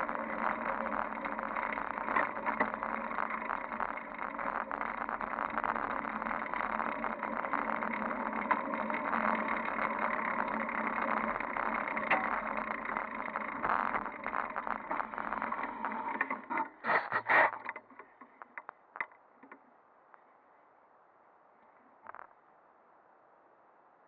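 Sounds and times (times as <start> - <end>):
bicycle tyres on asphalt: 0.0 - 19.1
faint clicks: 0.0 - 20.3.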